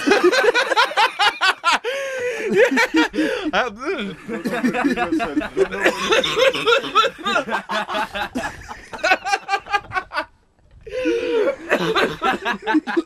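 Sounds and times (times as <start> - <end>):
people laughing and giggling: 0.0 - 13.0.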